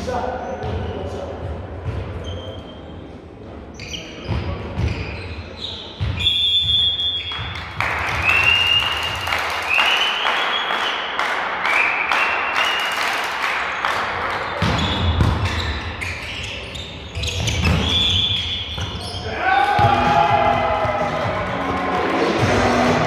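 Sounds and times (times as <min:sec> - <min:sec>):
shoe squeaks: 0:02.2 - 0:03.0, 0:03.7 - 0:07.4, 0:14.5 - 0:19.4
shrill whistle blast: 0:06.2 - 0:07.5, 0:08.2 - 0:11.1, 0:17.3 - 0:19.3
volleyball ball contacts: 0:14.3 - 0:15.9.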